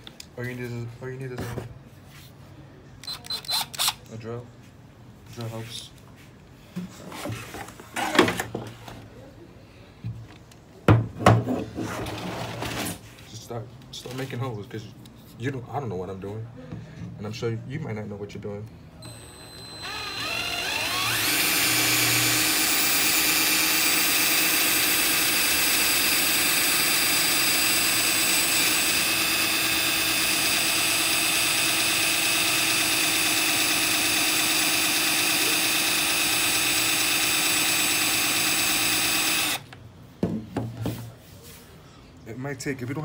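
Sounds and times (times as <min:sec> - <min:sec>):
cordless drill boring: 0:19.0 - 0:39.7.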